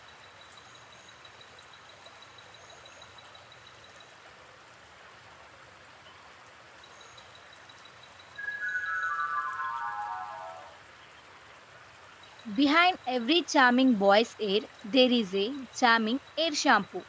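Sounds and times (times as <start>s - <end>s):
faint background hiss: 0.0s - 17.0s
high-pitched pipping: 8.4s - 10.8s
short high chirps: 8.4s - 10.8s.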